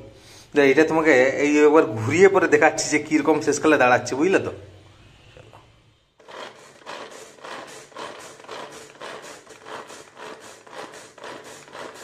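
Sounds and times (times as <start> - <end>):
vegetable chopper whirring rasps: 6.2 - 12.0.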